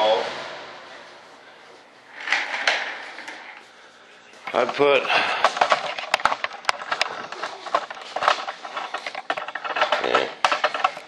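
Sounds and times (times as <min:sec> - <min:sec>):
hard objects knocking and clattering: 0:04.5 - 0:11.0.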